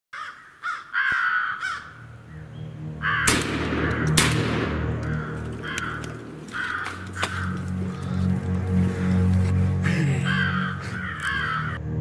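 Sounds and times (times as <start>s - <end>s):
crows cawing: 0.1s - 2.1s, 2.8s - 11.8s
loud gunshots: 3.3s - 4.9s.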